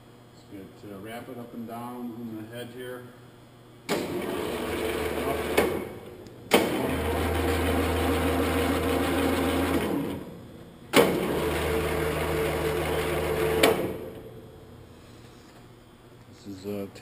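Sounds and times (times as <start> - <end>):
grinder head drive humming and whining: 3.6 - 16.3.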